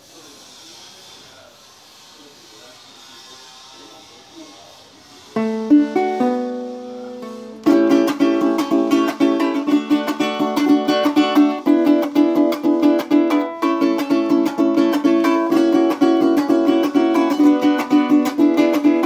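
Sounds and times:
cuatro strummed and plucked: 5.4s - 19.0s.

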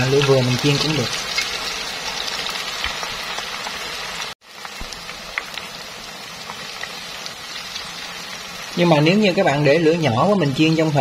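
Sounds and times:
food deep-frying in oil: 0.0s - 11.0s.

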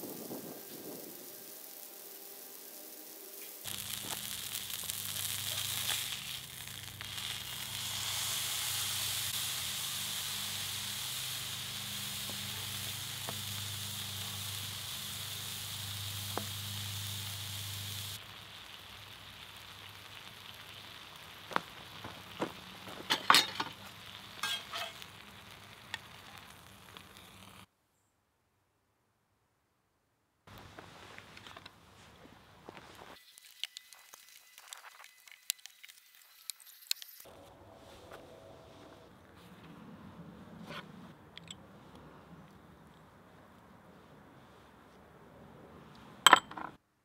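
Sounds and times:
meat sizzling on griddle: 0.0s - 27.7s.

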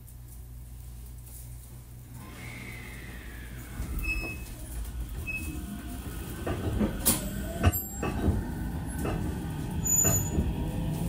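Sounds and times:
train motors whining: 2.1s - 11.0s
train wheels on rails: 2.2s - 11.0s
wheel clacks: 3.1s - 11.0s.

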